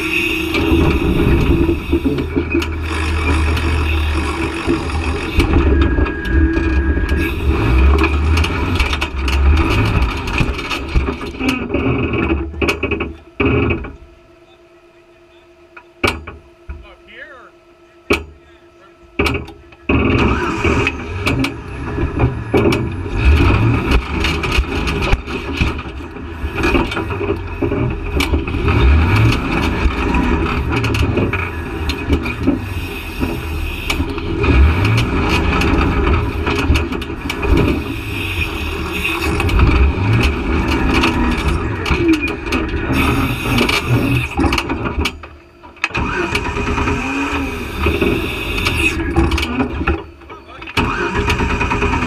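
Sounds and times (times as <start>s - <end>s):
off-road vehicle engine revving: 0.0s - 14.0s, 19.2s - 45.1s, 45.8s - 50.1s, 50.7s - 52.0s
sharp knocks and clatter: 0.5s - 14.0s, 18.1s - 18.4s, 19.2s - 38.0s, 38.8s - 47.0s.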